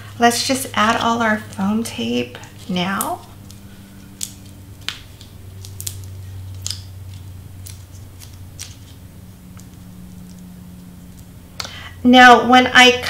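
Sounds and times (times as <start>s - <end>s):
steady low hum: 0.0s - 13.0s
paper and tape clicks and crackles: 2.4s - 9.0s.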